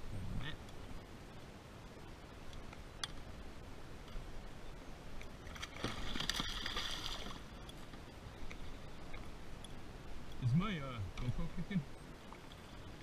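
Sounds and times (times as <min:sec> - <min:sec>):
fish splashing in water: 0:05.5 - 0:07.4.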